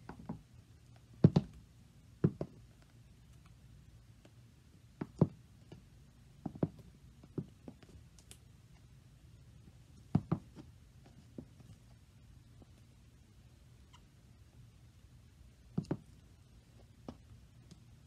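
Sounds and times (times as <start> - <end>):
high heels clicking on wooden floor: 6.5 - 7.6, 15.8 - 16.1.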